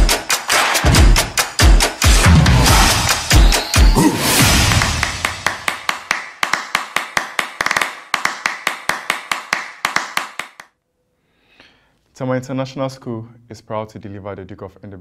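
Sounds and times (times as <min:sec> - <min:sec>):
fast percussive tapping music: 0:00.0 - 0:10.6.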